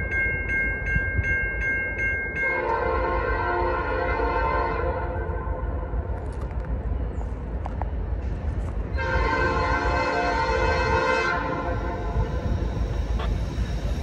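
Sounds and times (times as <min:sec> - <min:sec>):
low train rumble: 0:00.0 - 0:14.0
locomotive air horn blast: 0:02.6 - 0:05.3, 0:09.0 - 0:12.4.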